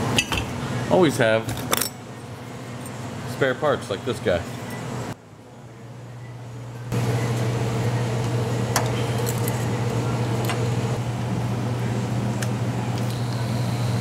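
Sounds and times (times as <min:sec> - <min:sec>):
machine hum: 0:04.4 - 0:14.0.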